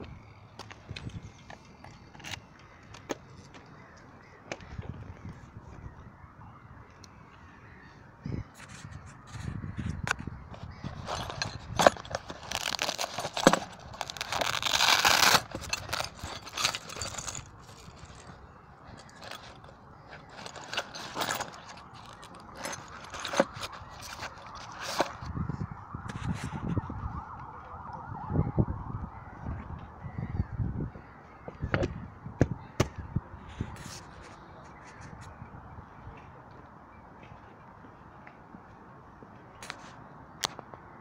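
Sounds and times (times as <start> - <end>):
fabric bag rustling: 10.5 - 25.3.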